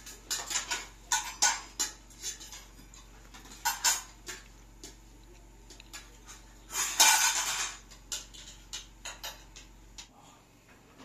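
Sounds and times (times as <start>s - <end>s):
cutlery clinking against plates: 0.0s - 5.0s, 5.6s - 10.1s.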